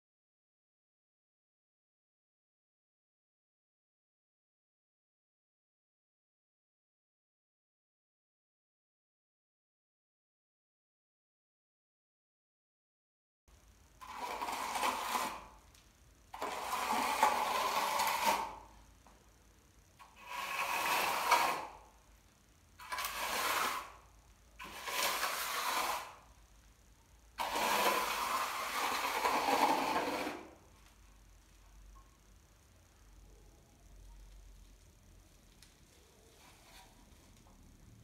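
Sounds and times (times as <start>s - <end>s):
trowel scraping cement: 14.0s - 15.5s, 16.4s - 18.6s, 20.0s - 21.8s, 22.8s - 24.0s, 24.6s - 26.2s, 27.4s - 30.6s.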